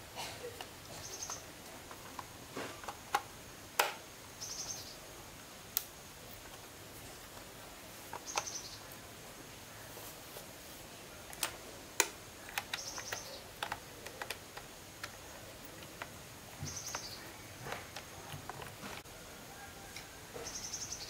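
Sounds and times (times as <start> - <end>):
small tools clicking and tapping: 11.3 - 19.1.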